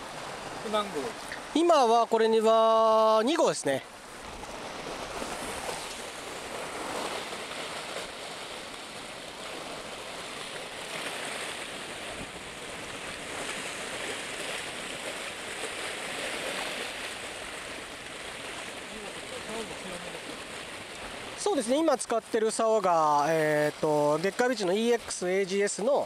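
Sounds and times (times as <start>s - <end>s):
waves washing against concrete: 0.0s - 26.0s.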